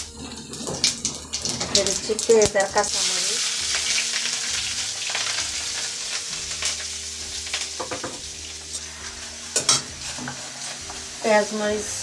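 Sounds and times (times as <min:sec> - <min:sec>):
onions sizzling in hot oil: 0:00.0 - 0:12.0
metal spatula scraping pan: 0:08.7 - 0:11.4.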